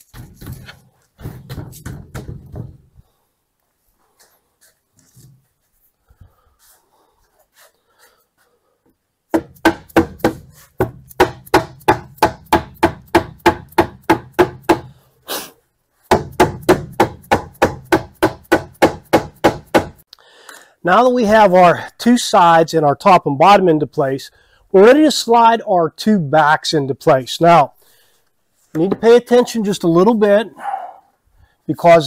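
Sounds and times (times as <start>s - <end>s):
mallet knocking plywood: 0.2s - 2.9s, 9.3s - 14.9s, 16.1s - 20.0s.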